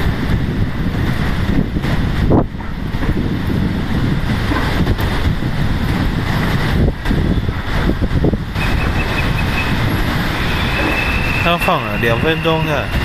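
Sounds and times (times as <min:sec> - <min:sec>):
steady high tone: 0:10.4 - 0:13.0.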